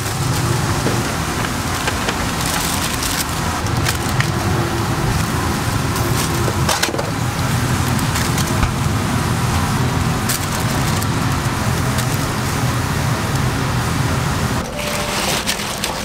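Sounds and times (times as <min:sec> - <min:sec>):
paper wrappers crinkling: 0:00.1 - 0:05.3, 0:10.2 - 0:12.6, 0:14.6 - 0:16.0.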